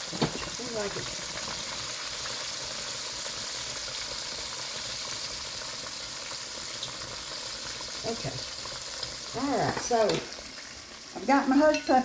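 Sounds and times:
oil sizzling while deep-frying: 0.0 - 12.0.

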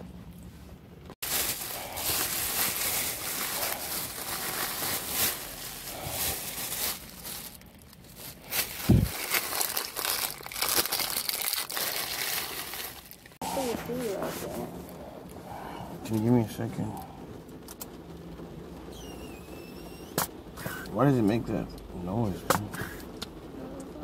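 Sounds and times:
plastic bags rustling: 1.1 - 15.4.

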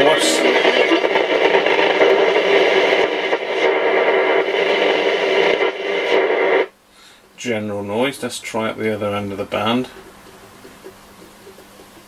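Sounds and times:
radio static: 0.0 - 6.7.

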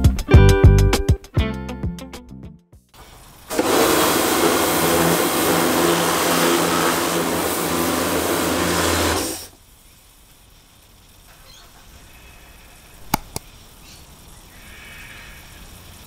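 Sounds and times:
water jet hissing: 3.0 - 9.6
pressure washer pump hum: 3.5 - 9.5.

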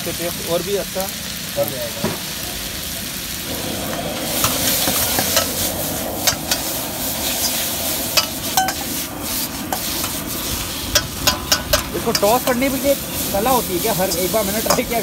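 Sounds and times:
noodles sizzling in a wok: 0.0 - 15.0
ladle scraping and clacking wok: 3.5 - 15.0.

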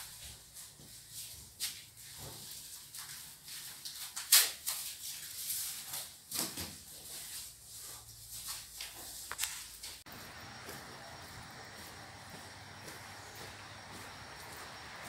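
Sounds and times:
footsteps on parquet floor: 7.8 - 15.0
steady background hiss: 9.9 - 15.0.

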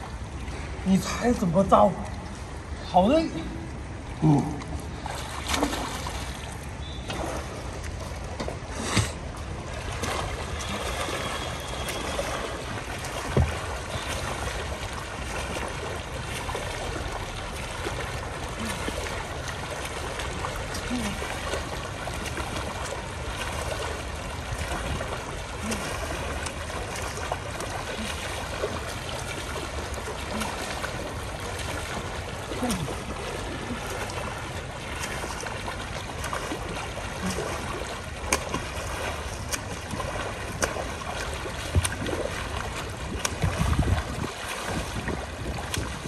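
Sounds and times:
swimmer's arms splashing water: 4.1 - 46.0.

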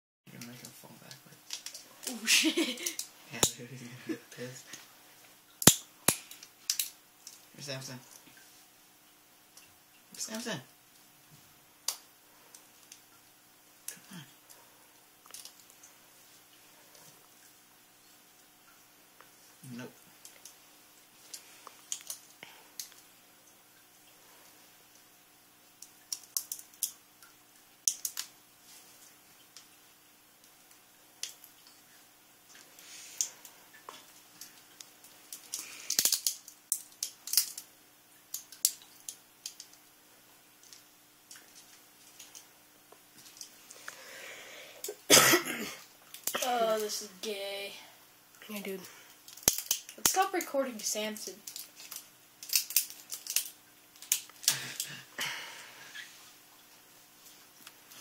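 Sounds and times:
bird beak crunching and clicking: 21.2 - 23.0, 25.8 - 27.0, 27.8 - 28.4, 34.4 - 37.7, 38.3 - 39.8, 49.3 - 50.1, 51.4 - 54.6.

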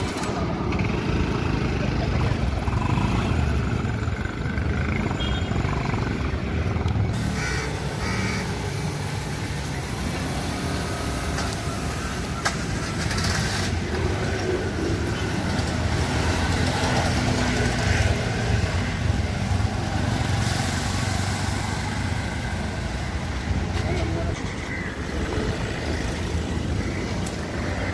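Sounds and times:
rumble of passing vehicles: 0.0 - 27.9
crows cawing: 7.2 - 8.7, 24.5 - 25.2.

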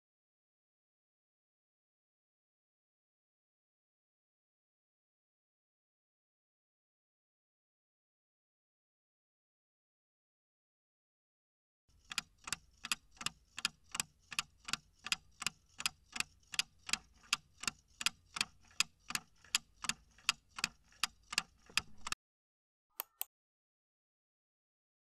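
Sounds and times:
clock ticking: 11.9 - 22.2.

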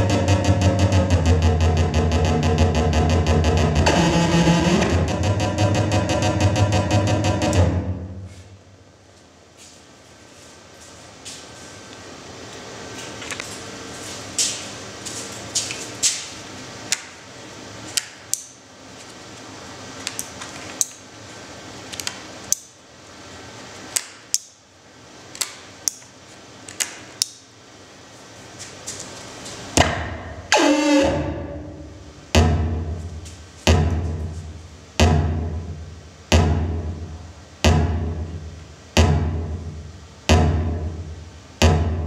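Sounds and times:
wavering feedback tone sliding down: 0.0 - 7.8, 30.5 - 31.9
deep thump: 32.4 - 33.0, 33.7 - 34.2, 36.3 - 36.8, 37.7 - 38.2, 41.6 - 42.0.

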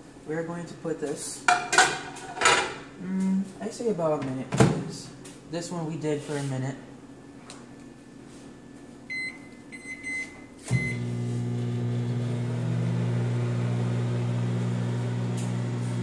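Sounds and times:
microwave oven humming: 6.9 - 16.0
microwave keypad beeping: 9.1 - 11.1.

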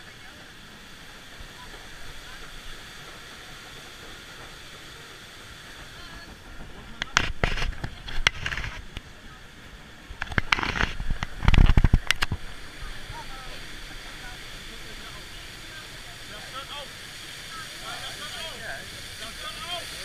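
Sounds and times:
crackling splashing water: 0.0 - 20.0
water rushing: 0.0 - 20.0.

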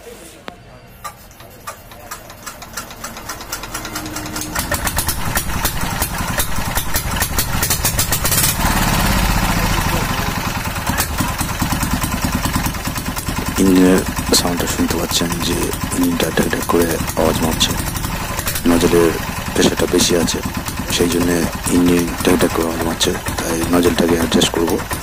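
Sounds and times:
diesel engine knocking: 1.0 - 25.0.

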